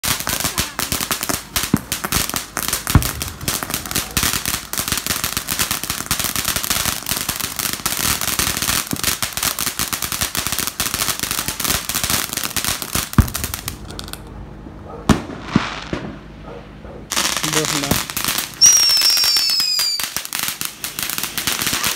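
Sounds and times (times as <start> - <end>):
fireworks crackling: 0.0 - 14.3, 15.1 - 16.3, 17.1 - 21.9
loud firework pops: 1.3 - 5.9, 8.5 - 9.3, 13.0 - 14.2, 15.1 - 16.2.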